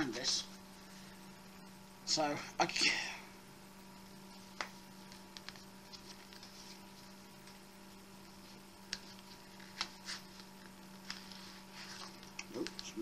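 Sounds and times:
low mains hum: 0:00.0 - 0:13.0
wallet clicks and rustles: 0:08.8 - 0:13.0.

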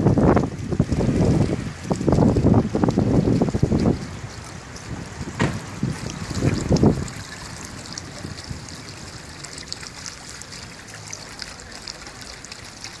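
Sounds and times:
wind bumps on microphone: 0:00.0 - 0:07.3
water jet splashing into bowl: 0:00.0 - 0:13.0.

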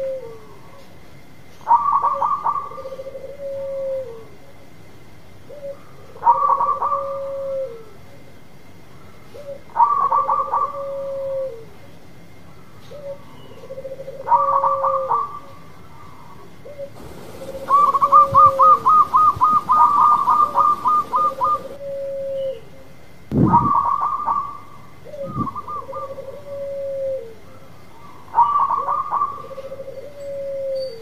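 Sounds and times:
dove cooing: 0:00.0 - 0:00.7, 0:01.7 - 0:04.3, 0:05.5 - 0:08.0, 0:09.3 - 0:11.6, 0:12.9 - 0:22.8, 0:23.5 - 0:31.0
rapid dove notes: 0:16.9 - 0:22.0.

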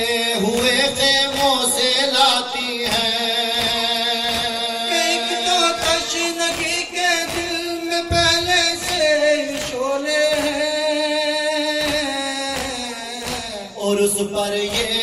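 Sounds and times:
men singing a lament: 0:00.0 - 0:15.0
hand slaps on chest: 0:05.8 - 0:10.6, 0:11.8 - 0:13.5.

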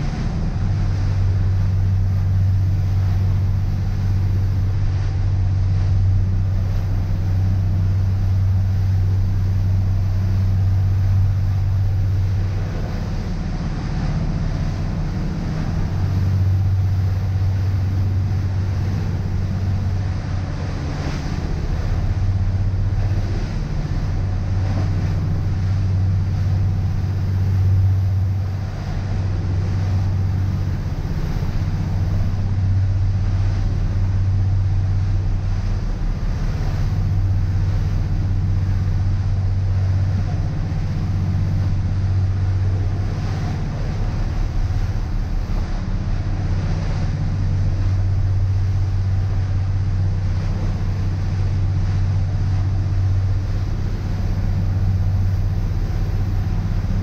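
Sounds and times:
boat engine drone: 0:00.0 - 0:57.0
water rushing past: 0:00.0 - 0:57.0.

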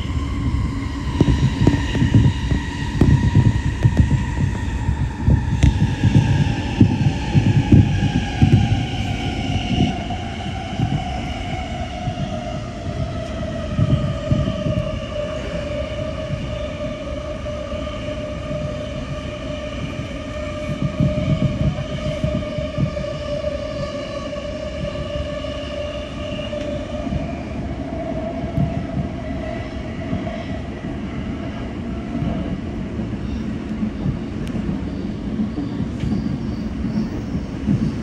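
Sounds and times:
low thumps: 0:00.0 - 0:11.3.

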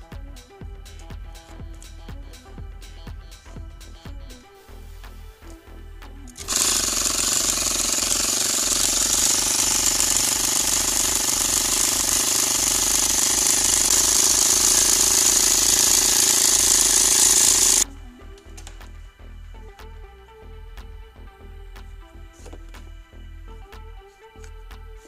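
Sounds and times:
small air compressor running: 0:06.4 - 0:17.8.

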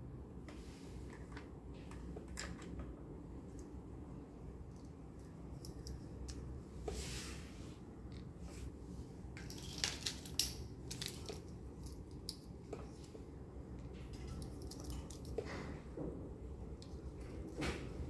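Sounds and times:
soft rustle: 0:06.8 - 0:07.8.

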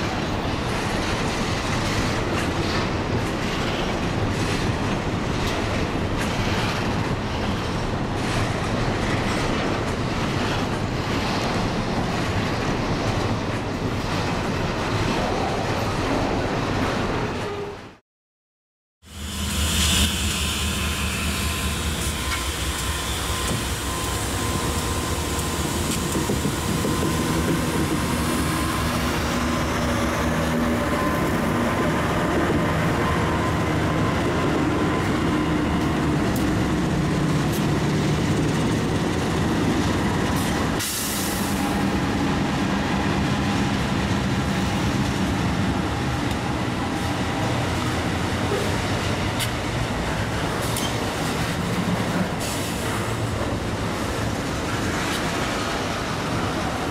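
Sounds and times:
diesel locomotive engines running: 0:19.0 - 0:56.9.

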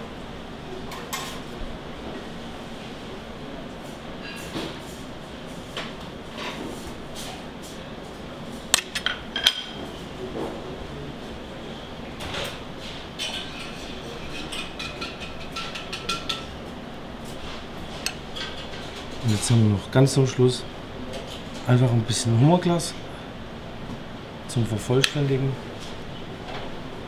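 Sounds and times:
steady background hum: 0:00.0 - 0:27.0
utensils and dishes clinking: 0:08.7 - 0:09.8, 0:13.2 - 0:16.6, 0:17.9 - 0:19.8.

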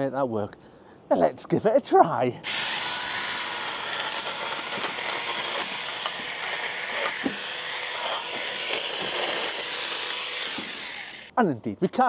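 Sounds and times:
electric chainsaw running: 0:02.5 - 0:11.3
cutting clicks: 0:03.5 - 0:11.3.

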